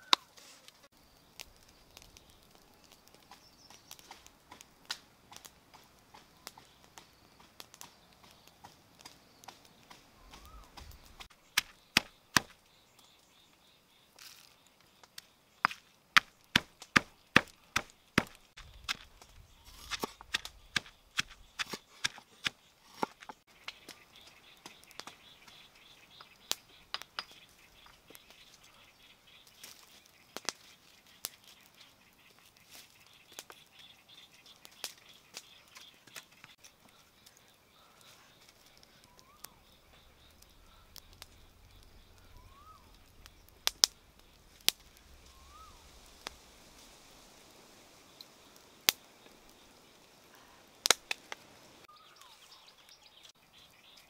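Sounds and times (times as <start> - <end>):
faint bird chirps: 6.3 - 15.6, 17.2 - 46.5, 51.8 - 54.0.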